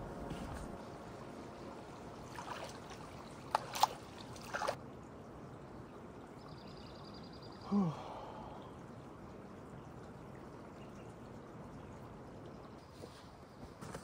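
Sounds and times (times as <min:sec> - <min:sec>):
water splashing: 0:00.0 - 0:05.1
water running and trickling: 0:00.6 - 0:13.5.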